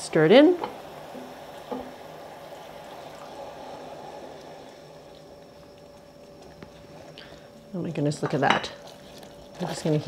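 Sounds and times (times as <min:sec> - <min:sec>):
sauce bubbling in a saucepan: 0:00.0 - 0:07.8.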